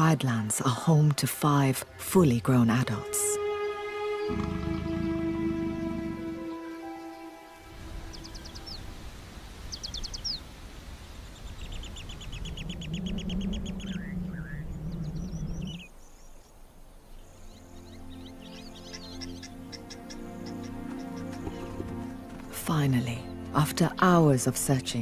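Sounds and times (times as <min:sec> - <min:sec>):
soft music: 0:00.0 - 0:09.5, 0:17.1 - 0:25.0
birds trilling and chirping: 0:01.9 - 0:10.5, 0:11.2 - 0:23.9
low rumble of wind: 0:07.4 - 0:25.0
descending whistled bird notes: 0:11.5 - 0:15.9.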